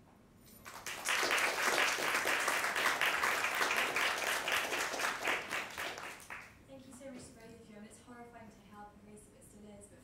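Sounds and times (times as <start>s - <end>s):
audience applauding: 0.7s - 6.5s.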